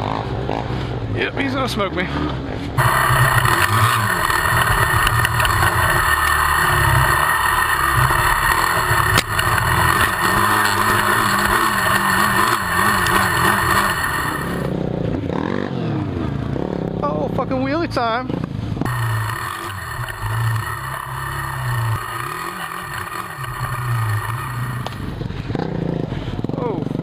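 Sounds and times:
vehicle engine revving: 1.7 - 17.0, 18.4 - 26.5.

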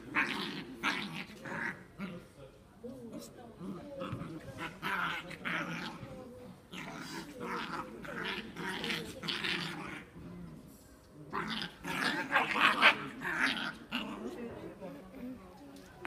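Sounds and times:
puppies growling: 0.0 - 2.3, 3.6 - 10.7, 11.3 - 14.5.

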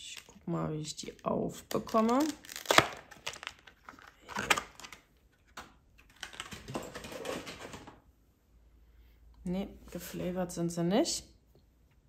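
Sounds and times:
plastic packaging crinkling: 1.0 - 7.8.

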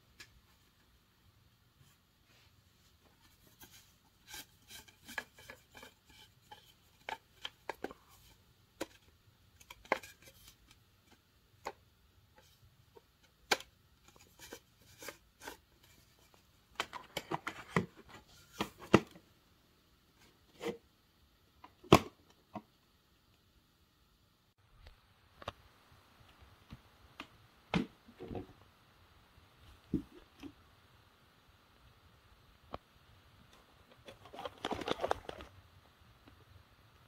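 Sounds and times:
plastic clatter: 33.9 - 35.6.

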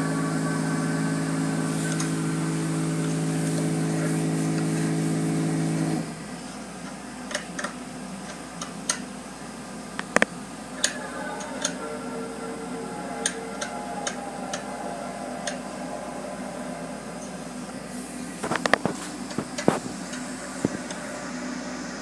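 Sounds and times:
car wash machinery hum: 0.0 - 22.0.

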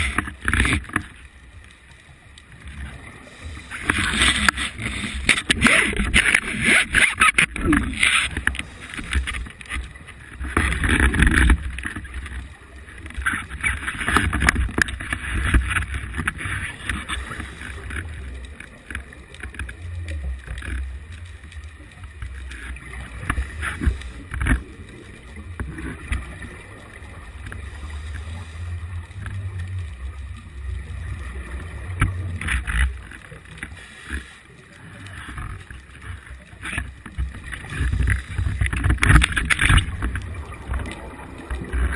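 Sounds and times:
low underwater rumble: 14.3 - 34.0, 37.1 - 41.9.

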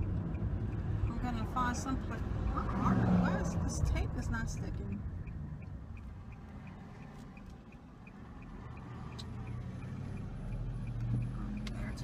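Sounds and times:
car engine and road rumble: 0.0 - 12.0
turn signal ticking: 0.0 - 12.0.

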